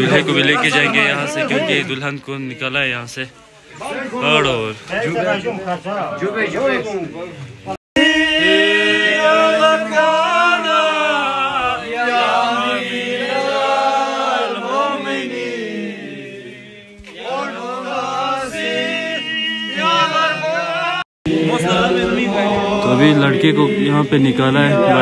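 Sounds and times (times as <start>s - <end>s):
slow vocal chant: 8.0s - 25.0s.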